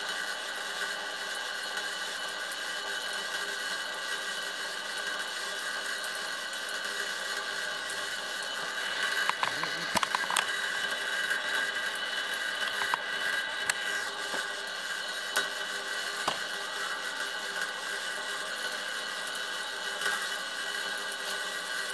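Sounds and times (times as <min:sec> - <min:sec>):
sharp electrical clicks: 0:08.4 - 0:17.3
electrical buzz and hiss: 0:08.6 - 0:14.6.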